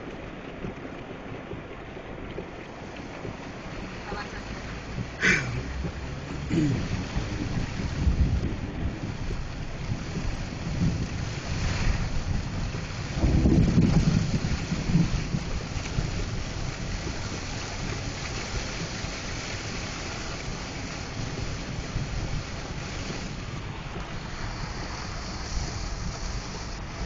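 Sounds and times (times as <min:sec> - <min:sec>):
heavy rain on a car: 0:00.0 - 0:27.0
thunder rumble: 0:01.4 - 0:27.0.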